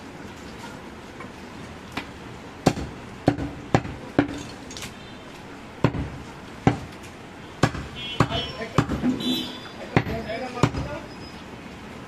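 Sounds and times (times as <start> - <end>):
knife chopping meat on wooden block: 2.6 - 4.4, 5.8 - 6.9, 7.6 - 9.1, 9.9 - 10.9.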